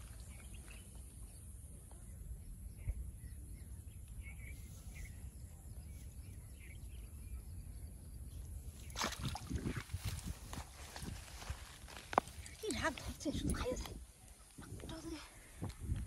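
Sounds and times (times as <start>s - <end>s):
faint bird chirps: 0.1s - 9.2s
fish splashing in water: 8.8s - 10.0s.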